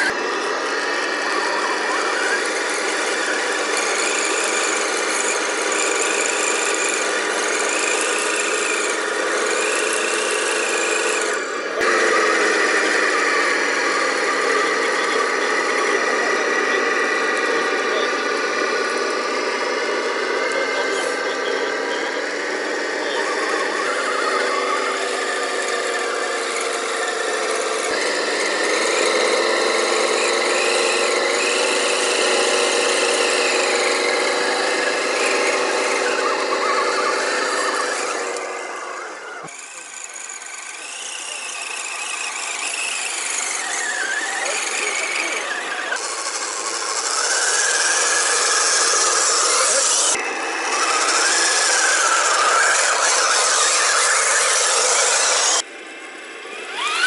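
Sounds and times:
electric motor whine of toy trucks: 0.0s - 57.0s.

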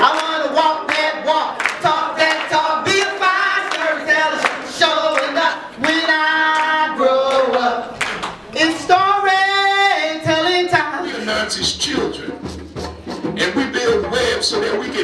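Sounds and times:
hands clapping in rhythm: 0.0s - 9.1s
women's voices singing: 0.0s - 12.0s
woman singing into a microphone: 8.6s - 11.2s.

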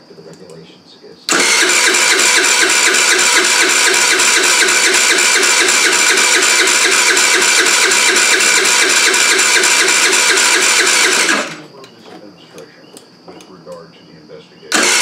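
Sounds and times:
electric starter cranking engine: 1.3s - 11.7s, 14.7s - 15.0s.

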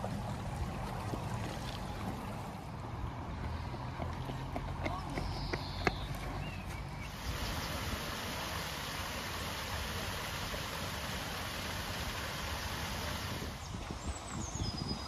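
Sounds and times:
water rushing over weir: 7.0s - 13.9s.

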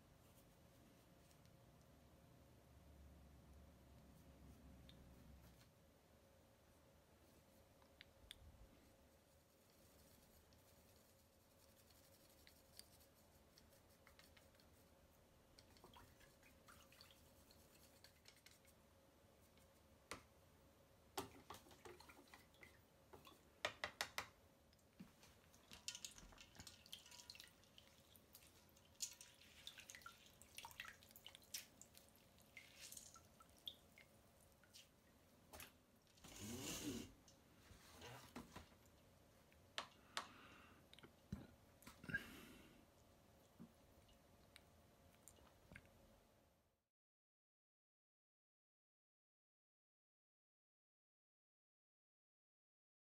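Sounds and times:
water splashing in a bowl: 15.6s - 18.6s, 25.5s - 35.0s.

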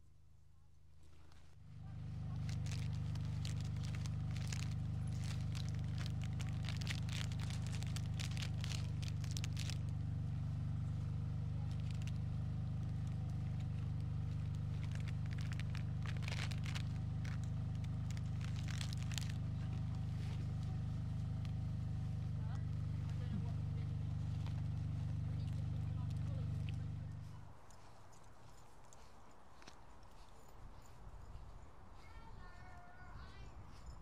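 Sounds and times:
tractor diesel engine idling: 1.7s - 27.4s
wrapper crinkling and rustling: 2.0s - 20.6s.

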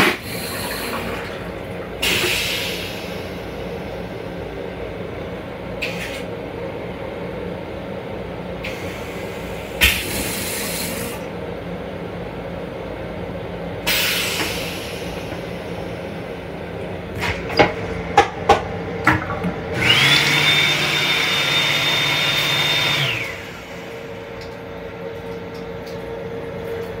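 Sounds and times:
toilet rinse water hissing: 0.0s - 4.2s, 8.6s - 11.3s, 13.8s - 16.5s, 19.8s - 24.8s
train low hum: 0.0s - 20.1s
motor whirring whine: 19.8s - 24.2s.

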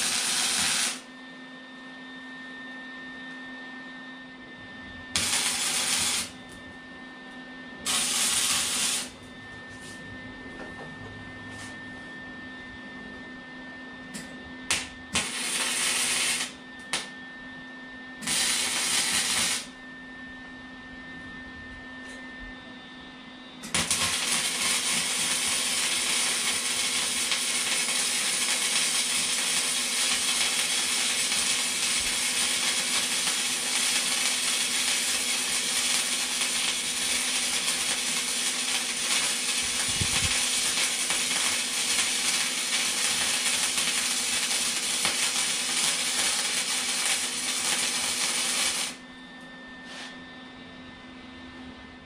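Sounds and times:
arc welding crackle: 0.0s - 1.1s, 5.1s - 6.4s, 7.9s - 9.2s, 14.7s - 17.1s, 18.2s - 19.7s, 23.6s - 49.0s.

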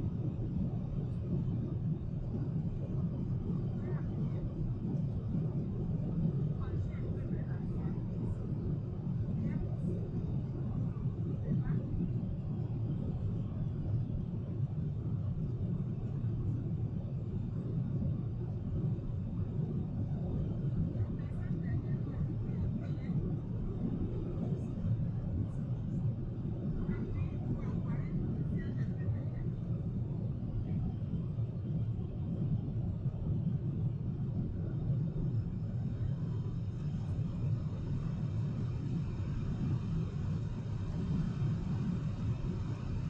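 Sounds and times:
airplane cabin engine rumble: 0.0s - 43.0s.

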